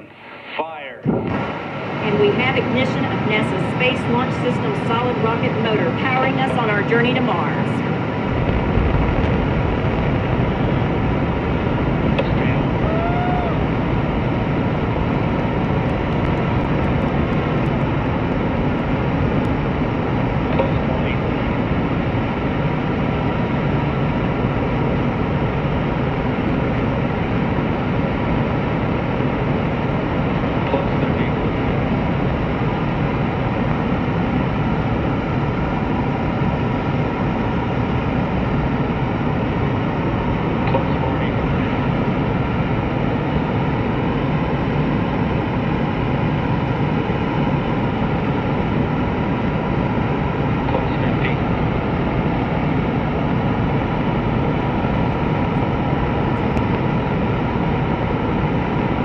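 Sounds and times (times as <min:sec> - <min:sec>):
rocket booster roaring: 0:00.0 - 0:04.2, 0:05.2 - 0:35.2.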